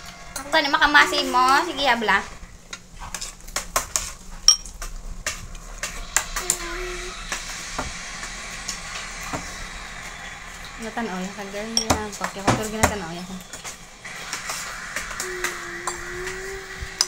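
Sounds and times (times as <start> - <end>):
child humming: 6.0 - 7.4, 15.1 - 17.0.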